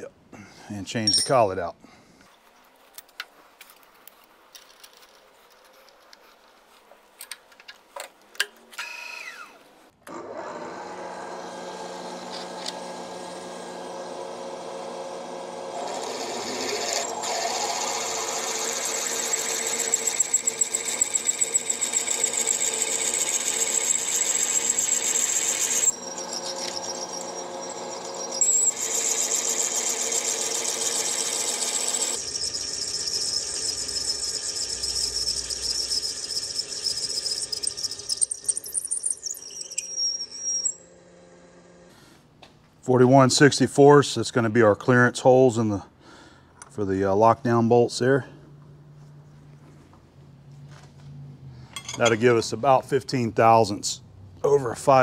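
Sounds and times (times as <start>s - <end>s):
drill cutting into metal: 10.1s - 40.8s
milling machine spindle whine: 11.1s - 40.8s
metal chips ticking: 31.0s - 40.8s.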